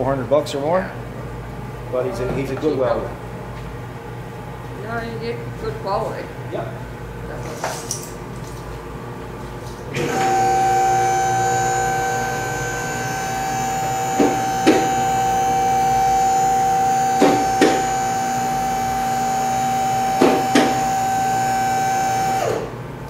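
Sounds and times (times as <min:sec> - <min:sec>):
machine motor high whine: 0:09.9 - 0:22.8.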